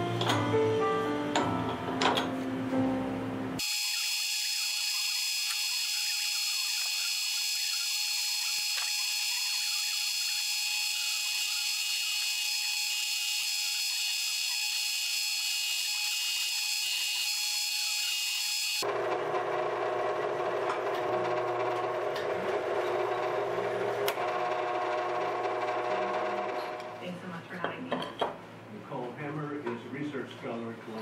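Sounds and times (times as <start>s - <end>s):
drill whining into metal: 3.6s - 26.9s.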